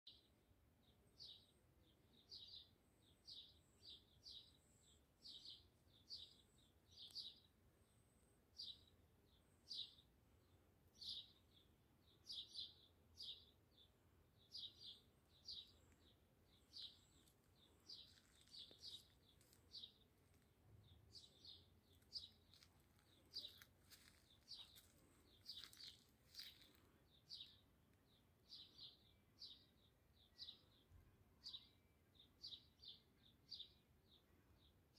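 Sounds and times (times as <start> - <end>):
small bird chirping: 0.9 - 34.8.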